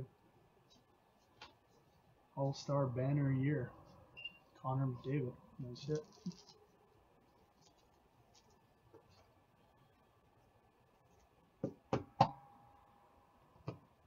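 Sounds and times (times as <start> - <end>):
plastic sleeve crinkling: 5.8 - 9.3.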